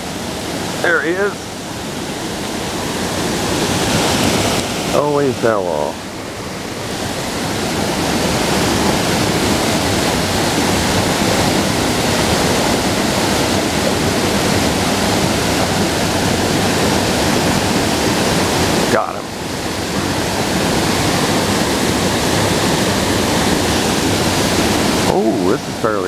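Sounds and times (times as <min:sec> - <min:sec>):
small waterfall rushing: 0:00.0 - 0:26.0.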